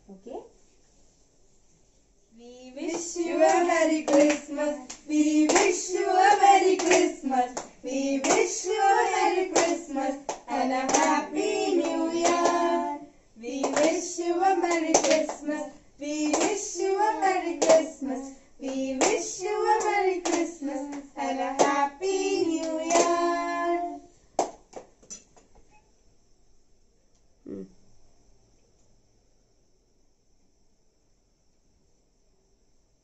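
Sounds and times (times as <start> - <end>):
children singing together: 2.8 - 24.0
hand-clapping: 2.9 - 12.9, 13.6 - 15.5, 16.2 - 18.0, 18.6 - 23.8, 24.4 - 24.9.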